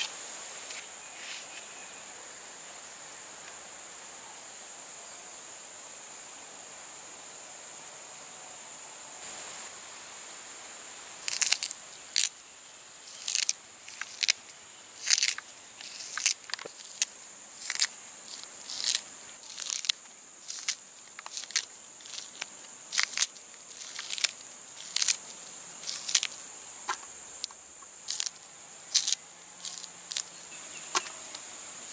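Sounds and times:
high insect drone: 0.0 - 31.9
plant stalks snapping: 11.2 - 12.4, 13.0 - 30.3, 30.9 - 31.9.

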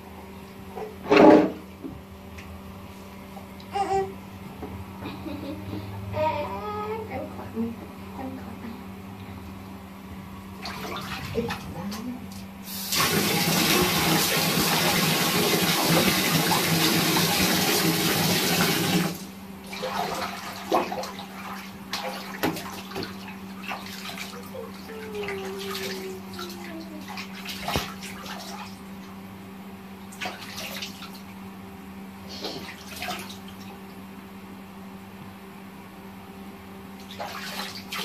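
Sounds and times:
bathwater splashing: 10.5 - 29.2, 30.1 - 31.4, 32.3 - 33.8, 37.0 - 38.0.

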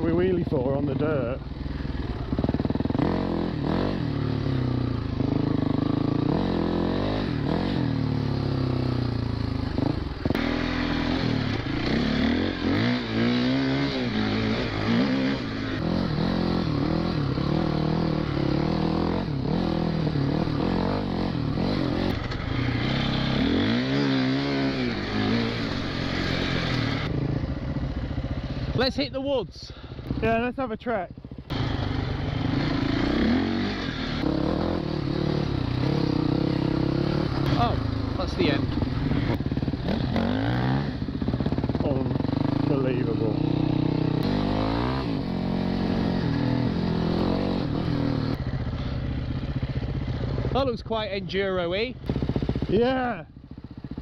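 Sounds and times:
dirt bike engine revving: 0.0 - 28.9, 31.2 - 54.0.

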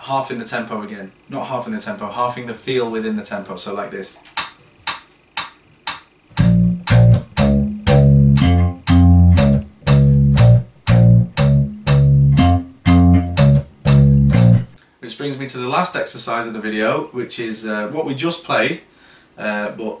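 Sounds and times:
slap electric bass: 6.3 - 14.8.

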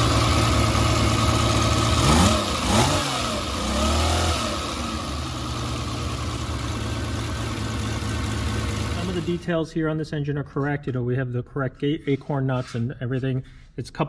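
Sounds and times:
car engine revving and idling: 0.0 - 9.6.

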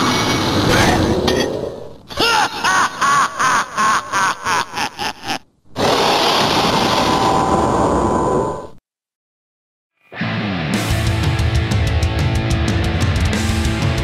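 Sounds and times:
loud sound effect: 0.0 - 2.0.

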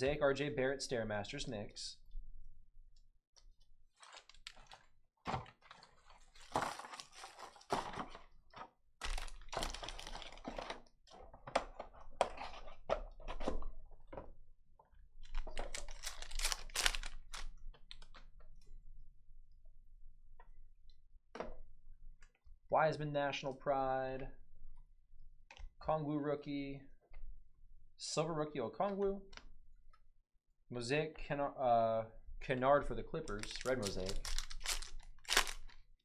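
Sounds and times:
foil wrappers tearing and crinkling: 4.0 - 4.9, 5.6 - 8.2, 9.0 - 10.8, 15.3 - 18.0, 33.3 - 35.8.

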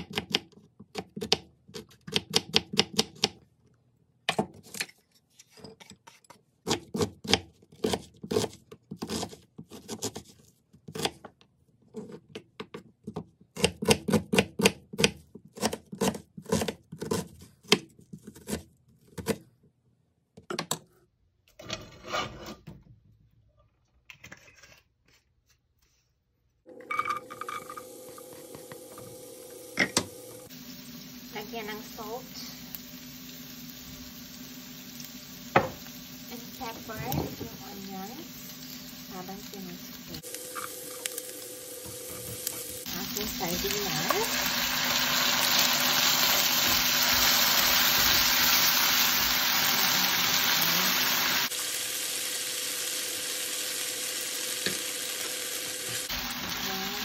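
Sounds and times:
onion sizzling in hot oil: 27.4 - 57.0.

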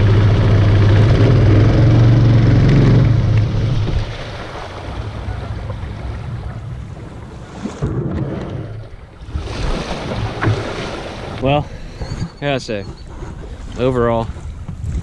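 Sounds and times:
water lapping against canoe hull: 0.0 - 15.0
wind on microphone: 5.0 - 15.0.

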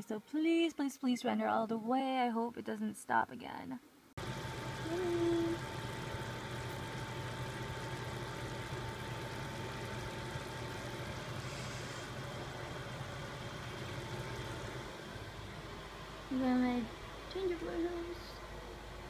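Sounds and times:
faint constant whine: 0.0 - 19.0
range hood fan humming: 4.2 - 19.0.

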